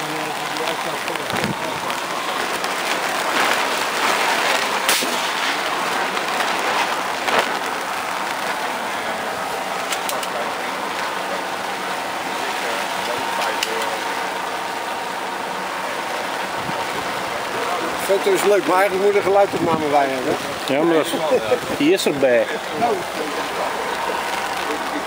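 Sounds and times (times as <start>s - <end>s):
sharp crack: 0.0s - 8.9s
rain on a shelter roof: 0.0s - 25.0s.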